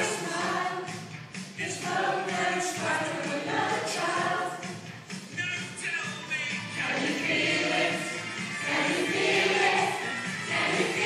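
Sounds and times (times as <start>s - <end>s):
women singing in chorus: 0.0s - 1.0s, 1.6s - 4.7s, 6.8s - 11.0s
musical accompaniment: 0.0s - 11.0s.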